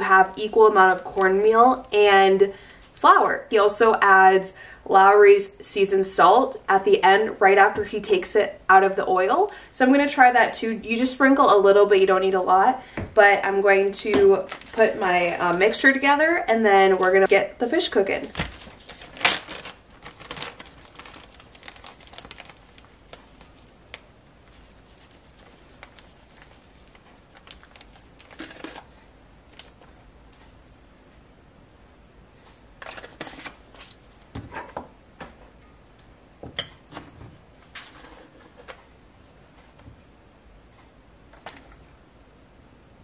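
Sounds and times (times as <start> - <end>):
plastic bag crinkling: 14.4 - 15.8, 18.1 - 29.8.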